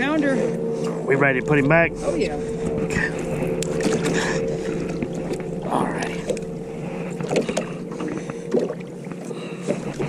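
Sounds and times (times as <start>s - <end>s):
boat motor humming: 0.0s - 10.0s.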